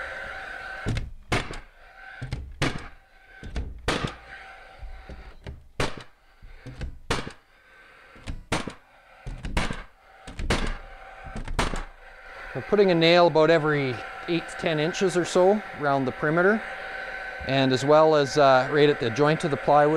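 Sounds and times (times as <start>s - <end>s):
nail gun shots: 1.3s - 1.7s, 2.6s - 3.0s, 3.8s - 4.2s, 5.8s - 6.2s, 7.1s - 7.4s, 8.5s - 8.8s, 9.6s - 10.8s, 11.5s - 11.9s.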